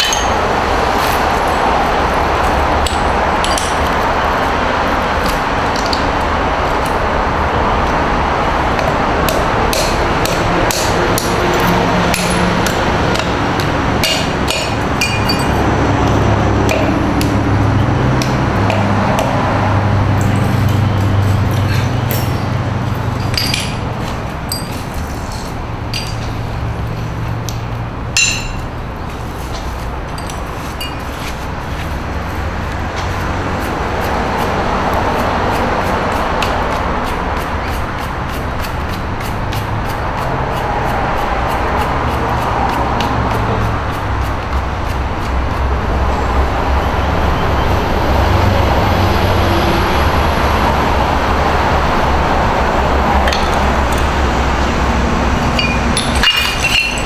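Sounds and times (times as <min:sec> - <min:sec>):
ceramic shards clinking: 0:00.0 - 0:00.4, 0:02.9 - 0:03.9, 0:14.0 - 0:15.6, 0:21.6 - 0:26.4, 0:28.2 - 0:28.7, 0:30.2 - 0:31.2, 0:55.4 - 0:57.0.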